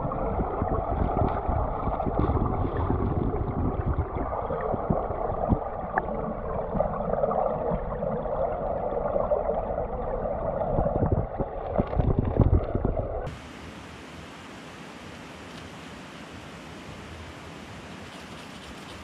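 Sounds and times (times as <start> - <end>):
low underwater thumps: 0.0 - 8.1, 10.7 - 13.3
muffled underwater water rush: 0.0 - 13.6
steady water hiss: 13.3 - 19.0.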